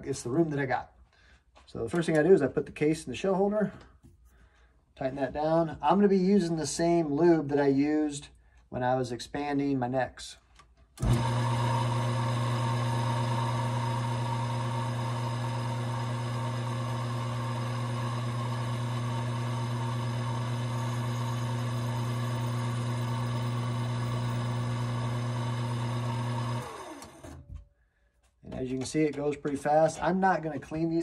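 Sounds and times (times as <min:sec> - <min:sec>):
small lathe motor humming: 0:11.0 - 0:27.4.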